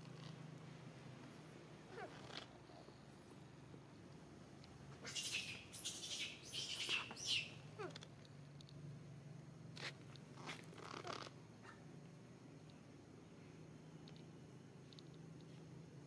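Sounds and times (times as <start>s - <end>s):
infant monkey squeaks and chirps: 5.0s - 8.0s.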